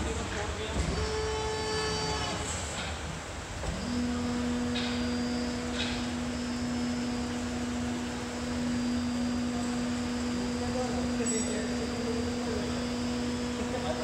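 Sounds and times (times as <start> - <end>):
hydraulic machine humming: 0.0 - 14.0
steady whine: 3.6 - 14.0.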